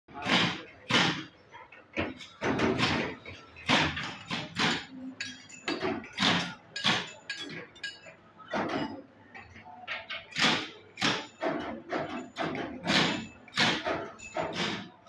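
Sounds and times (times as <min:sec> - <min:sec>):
metal clanking on metal: 0:10.0 - 0:15.0.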